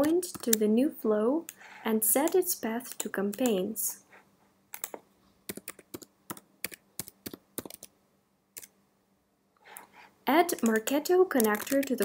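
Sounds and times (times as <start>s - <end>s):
keyboard typing clicks: 4.7s - 7.9s, 10.5s - 12.0s.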